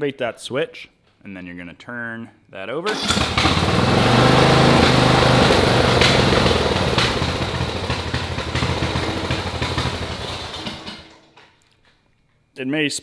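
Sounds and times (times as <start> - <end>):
riding lawn mower engine running: 2.9 - 11.3.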